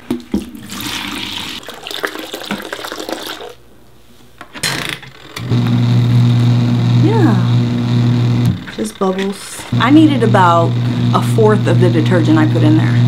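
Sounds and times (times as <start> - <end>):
water splashing into plastic bucket: 0.0 - 3.6
steady low hum: 5.5 - 13.0.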